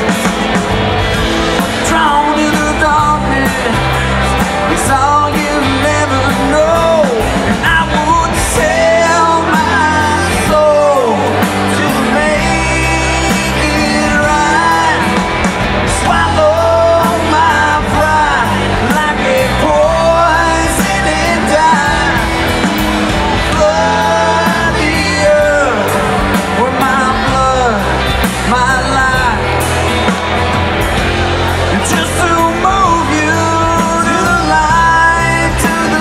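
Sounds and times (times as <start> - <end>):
lead singer's voice: 0.0 - 36.0
live band playing: 0.0 - 36.0.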